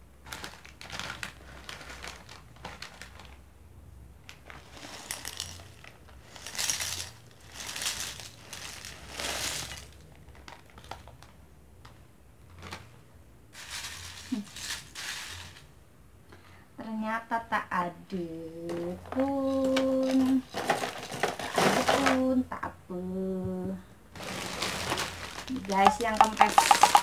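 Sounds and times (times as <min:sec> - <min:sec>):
crackers rattling into glass bowl: 0:00.2 - 0:03.4, 0:04.3 - 0:11.2, 0:13.6 - 0:15.7, 0:19.4 - 0:22.2, 0:24.2 - 0:27.0
hands rummaging through crackers: 0:00.2 - 0:03.4, 0:04.2 - 0:15.7, 0:18.7 - 0:22.2, 0:24.1 - 0:27.0
plastic snack packet crinkling: 0:00.2 - 0:03.4, 0:04.2 - 0:11.4, 0:12.4 - 0:13.0, 0:13.6 - 0:15.7, 0:18.7 - 0:22.2, 0:24.1 - 0:27.0.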